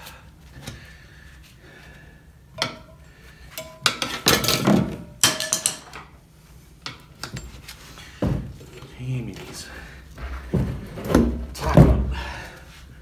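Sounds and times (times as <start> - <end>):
metal tyre irons clanking: 2.6 - 6.0.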